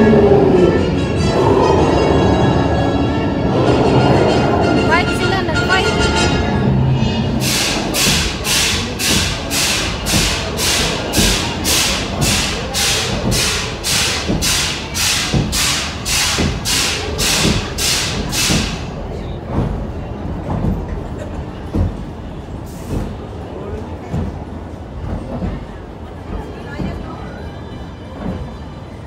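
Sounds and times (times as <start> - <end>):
steam locomotive chuffing: 0.0 - 27.2
train cars thumping over track: 7.4 - 27.0.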